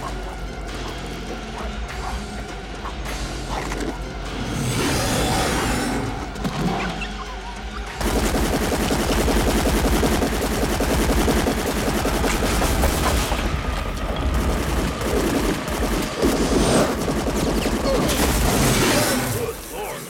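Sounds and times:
rapid cracks and crashes: 0:08.0 - 0:19.8.

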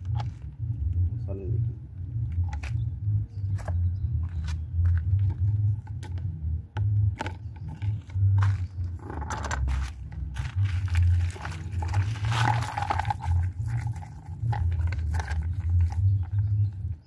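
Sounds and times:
low uneven rumble: 0:00.0 - 0:17.0.

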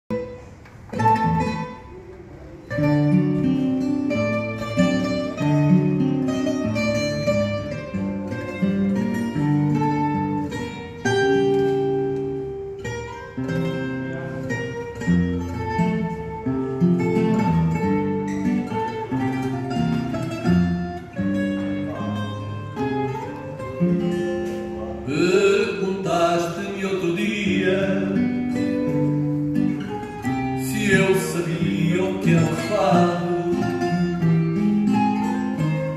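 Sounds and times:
plucked guitars playing: 0:00.1 - 0:35.9
person singing: 0:25.1 - 0:29.0, 0:30.6 - 0:34.3.

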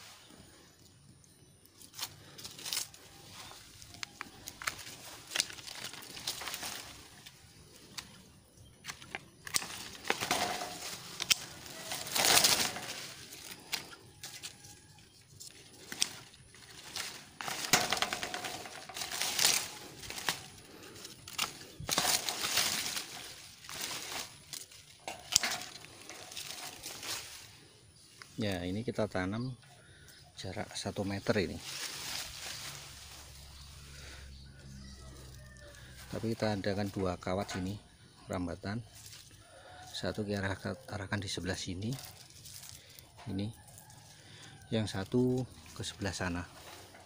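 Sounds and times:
leaves rustling and tearing: 0:01.6 - 0:29.5, 0:30.4 - 0:37.8, 0:38.8 - 0:47.0
pruning shears clicking: 0:03.6 - 0:08.2, 0:08.8 - 0:14.6, 0:15.4 - 0:27.6.

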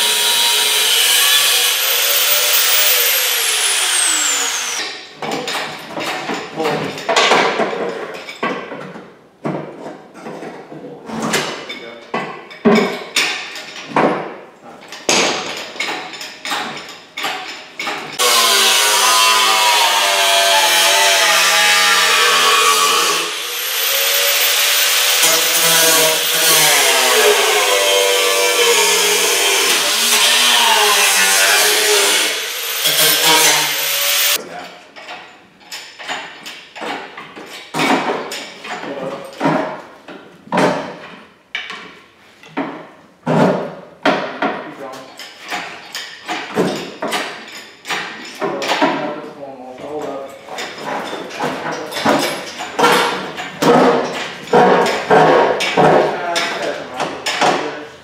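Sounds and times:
angle grinder cutting metal: 0:00.0 - 0:05.0, 0:18.2 - 0:34.4
hand tools knocking: 0:50.5 - 0:57.8.

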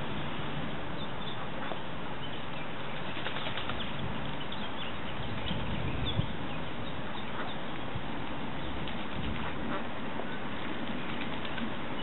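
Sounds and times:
duck splashing water: 0:02.8 - 0:04.0
wings flapping: 0:02.9 - 0:04.0, 0:11.0 - 0:12.0.

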